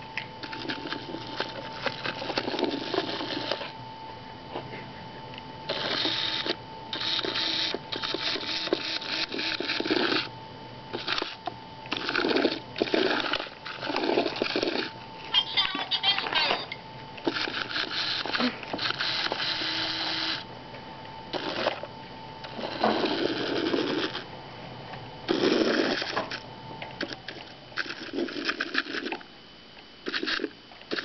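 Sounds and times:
faint steady whine: 0.0s - 31.0s
toy robot motor whirring: 0.4s - 3.7s, 5.7s - 10.3s, 10.9s - 14.9s, 17.2s - 20.4s, 21.3s - 24.3s, 25.3s - 26.4s, 27.0s - 29.2s, 30.0s - 31.0s.

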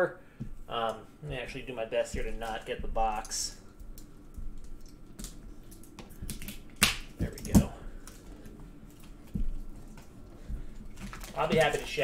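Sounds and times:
sharp plastic snaps: 3.2s - 8.2s.

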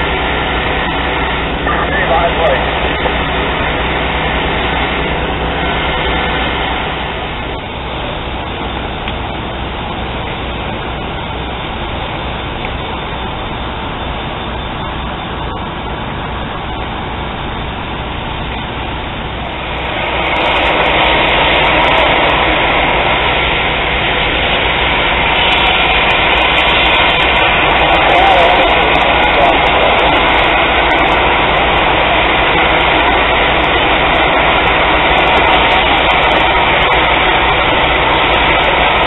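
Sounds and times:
diesel engines droning: 0.0s - 39.0s
water rushing hiss: 15.9s - 39.0s.

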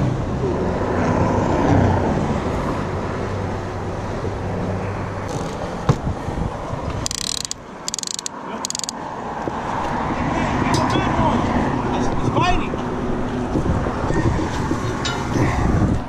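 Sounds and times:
road traffic: 0.0s - 16.0s
wind: 0.0s - 16.0s
fishing reel ratchet clicking: 7.0s - 9.0s.

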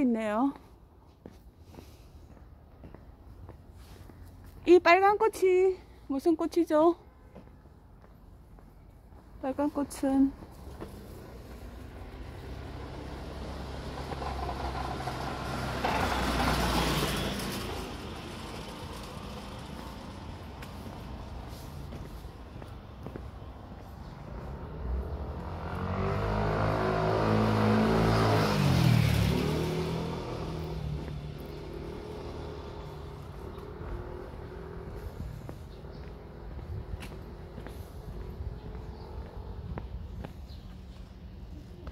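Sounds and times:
vehicle engine passing by: 10.8s - 22.5s, 23.8s - 39.8s.

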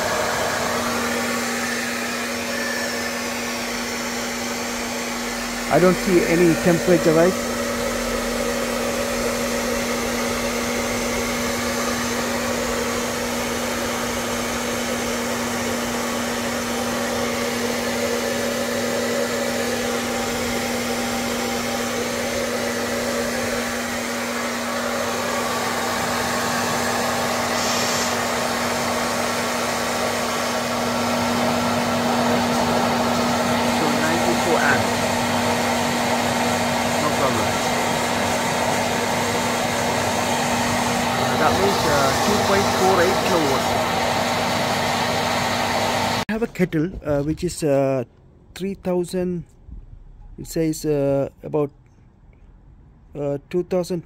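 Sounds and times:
hair dryer running: 0.0s - 46.4s.

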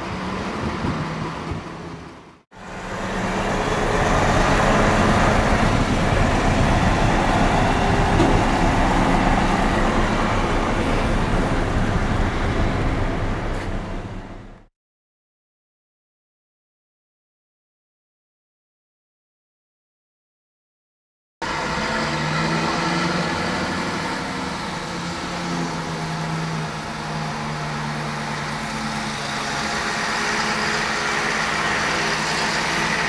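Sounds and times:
truck diesel engine running: 0.0s - 14.7s, 21.4s - 33.0s.

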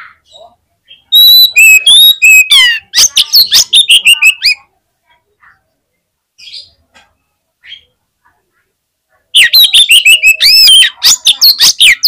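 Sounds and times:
magpie-robin singing: 0.0s - 4.7s, 9.4s - 12.0s.

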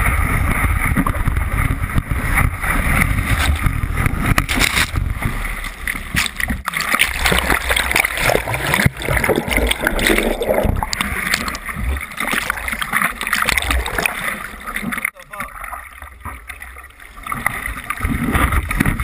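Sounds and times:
muffled wave whitewater splashing: 0.0s - 19.0s
low buffeting through foam: 7.2s - 12.0s.

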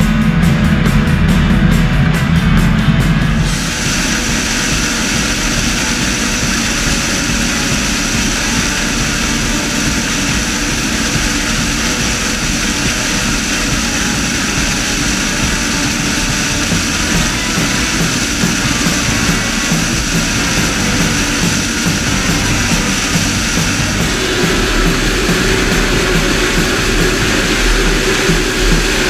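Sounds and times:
combine harvester machine noise: 0.0s - 29.0s
thin high whine: 0.0s - 29.0s.

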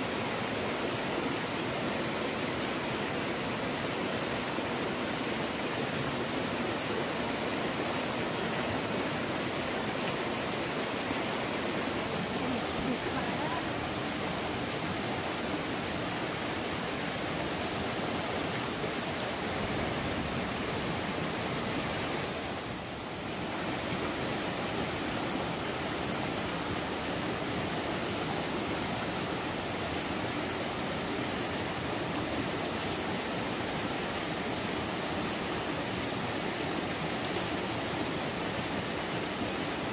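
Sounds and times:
stream water rushing: 0.0s - 39.9s.

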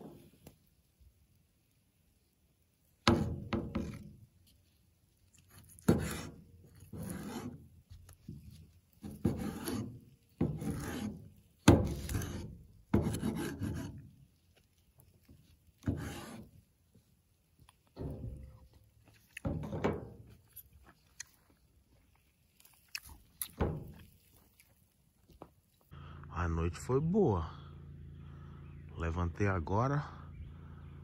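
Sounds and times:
rough rasping strokes: 5.3s - 16.7s.

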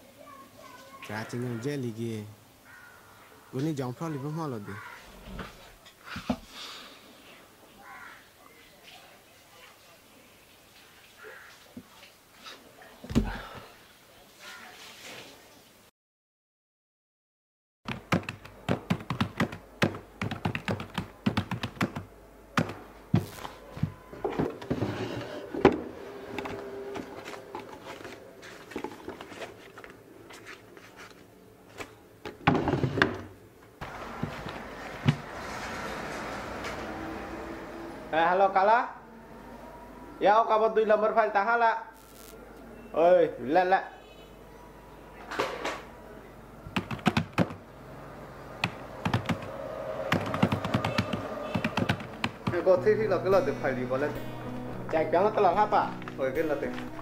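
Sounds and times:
keyboard typing: 17.9s - 23.4s, 46.7s - 47.6s, 48.6s - 52.7s
wooden drawer knocking and scraping: 22.6s - 27.8s, 32.3s - 33.3s
rustling and clicks of objects: 26.4s - 32.4s.

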